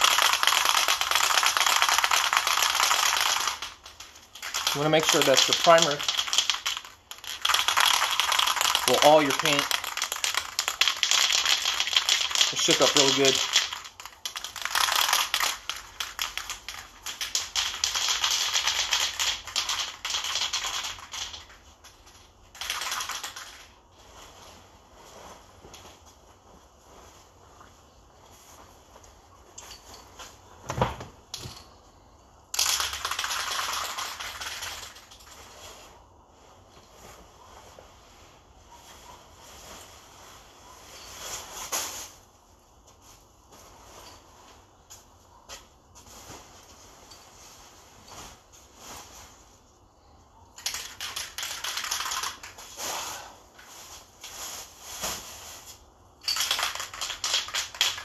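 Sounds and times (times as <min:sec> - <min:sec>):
spray can being shaken: 0:00.0 - 0:23.8, 0:32.5 - 0:35.8, 0:50.6 - 0:54.8, 0:55.4 - 0:58.0.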